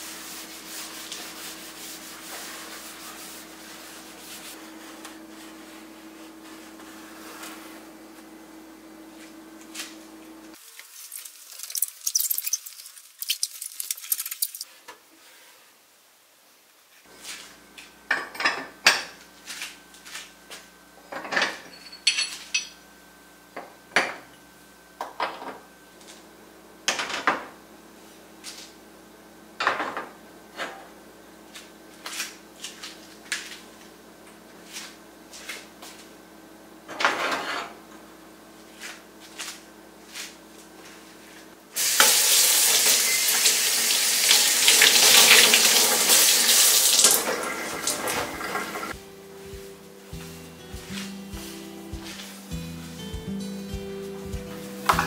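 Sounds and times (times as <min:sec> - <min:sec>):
faucet running into steel sink: 0:41.8 - 0:48.9.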